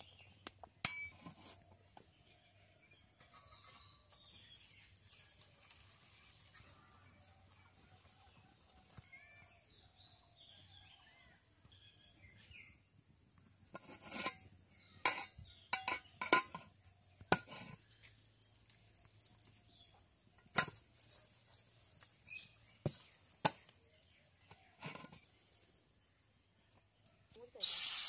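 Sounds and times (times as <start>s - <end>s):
metal lid knocking on pot: 15.1s - 16.6s.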